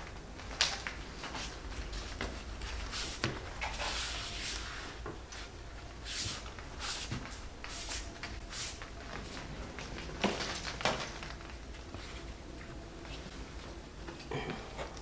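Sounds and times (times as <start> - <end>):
swishing strokes on joint compound: 2.8 - 8.8.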